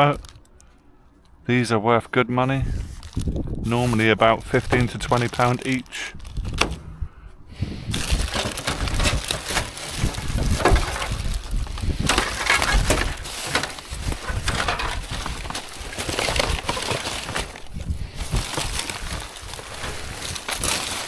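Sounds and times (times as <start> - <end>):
plastic bags rustling: 2.7 - 6.9, 7.9 - 21.0
rubbish clattering together: 3.8 - 7.0, 7.9 - 21.0.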